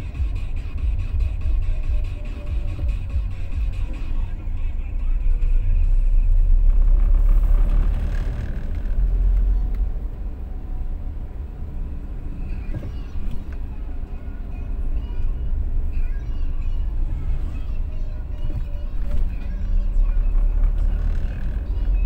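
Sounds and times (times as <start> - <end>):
car engine and road rumble: 0.0 - 22.0.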